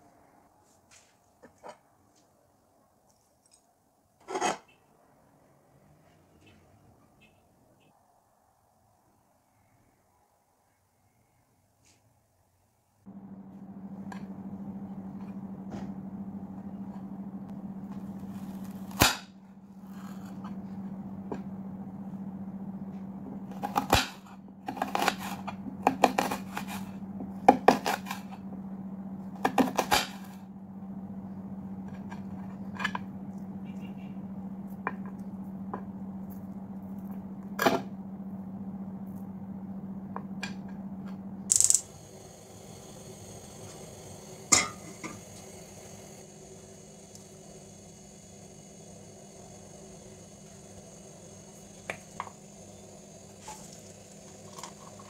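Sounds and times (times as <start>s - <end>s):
steady low hum: 13.1s - 55.0s
gas stove burner hissing: 41.5s - 55.0s.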